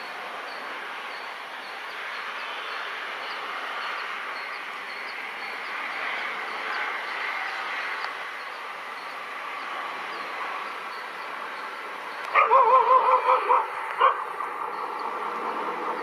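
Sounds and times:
dog yelping: 0:12.3 - 0:14.2.

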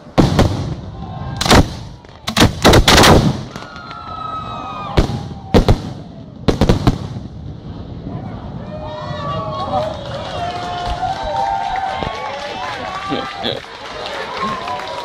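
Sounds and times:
firework bangs: 0:00.0 - 0:11.1.

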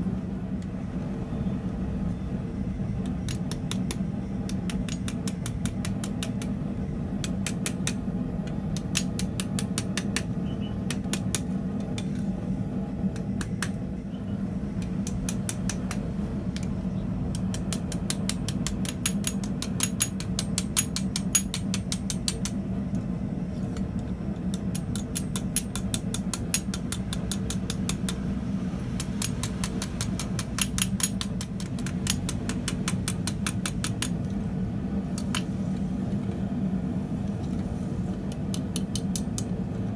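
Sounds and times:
machine hum: 0:00.0 - 0:39.9
sharp metal knocks: 0:17.3 - 0:22.6, 0:24.4 - 0:28.2, 0:29.0 - 0:34.2.

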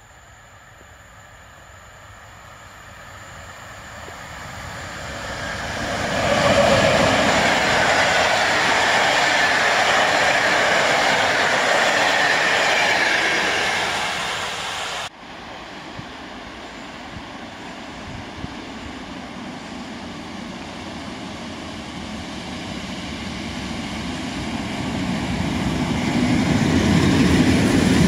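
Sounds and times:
train passing on rails: 0:00.0 - 0:28.0.

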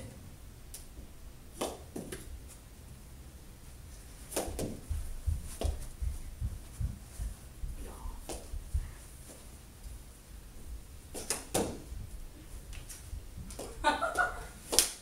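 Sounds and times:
knees thumping on carpet: 0:04.4 - 0:09.4.

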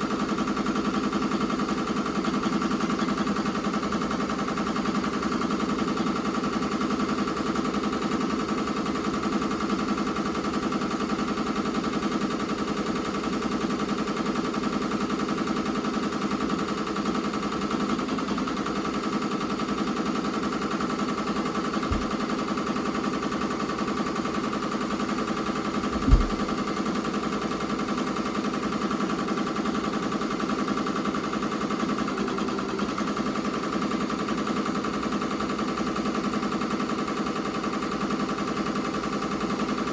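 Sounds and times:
embroidery machine rattling: 0:00.0 - 0:39.9
low thump: 0:26.0 - 0:26.5.

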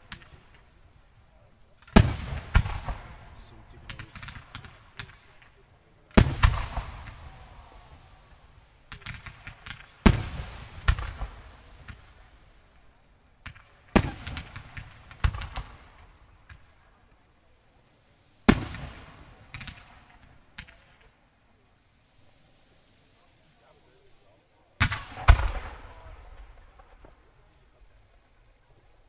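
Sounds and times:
firework pops and crackling: 0:00.0 - 0:17.2, 0:18.4 - 0:21.2, 0:24.2 - 0:28.2
firework shells bursting: 0:00.0 - 0:17.2.

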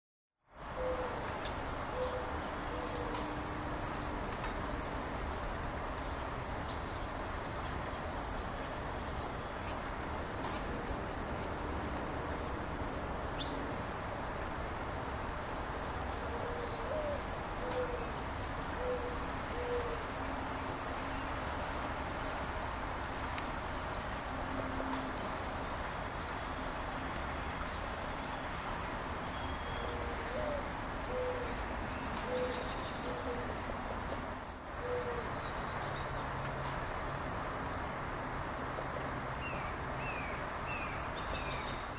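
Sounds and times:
rain hiss: 0:00.5 - 0:41.9
dove cooing: 0:00.8 - 0:01.2, 0:16.3 - 0:18.1, 0:18.8 - 0:19.9
small birds chirping: 0:38.4 - 0:41.9.

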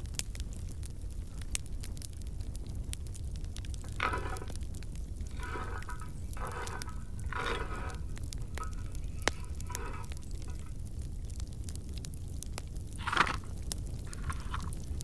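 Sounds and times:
wood fire crackling: 0:00.0 - 0:15.0
wooden spoon scraping metal pan: 0:03.8 - 0:10.8, 0:13.0 - 0:13.5.

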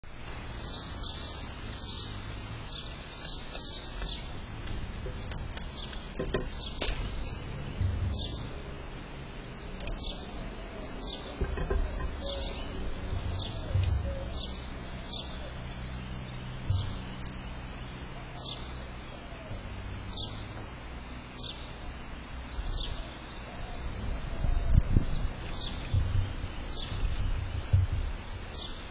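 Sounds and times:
low rumble: 0:04.2 - 0:28.9
small bird calling: 0:05.1 - 0:28.9.

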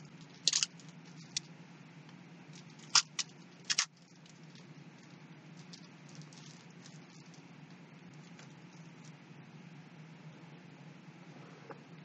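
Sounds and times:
faint low hum: 0:00.0 - 0:12.0
rubber sheet and plastic rustling: 0:02.5 - 0:09.2.

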